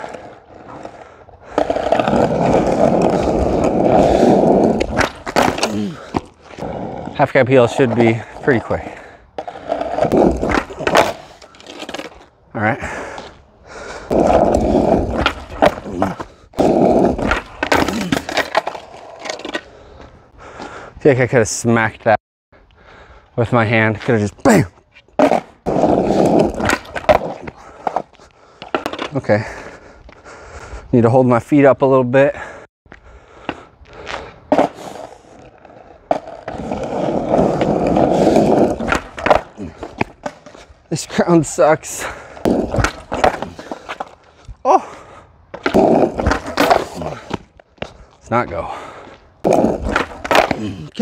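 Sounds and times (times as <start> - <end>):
skateboard clattering on pavement: 0.0 - 6.6, 7.6 - 12.2, 14.1 - 19.6, 25.2 - 29.1, 34.5 - 40.6, 42.4 - 44.3, 45.5 - 47.5, 49.5 - 50.9
skateboard wheels rolling on asphalt: 0.0 - 20.8, 22.9 - 31.6, 32.4 - 51.0
skateboard clacks: 37.3 - 40.6, 49.5 - 50.6
skateboard pop: 49.5 - 50.7.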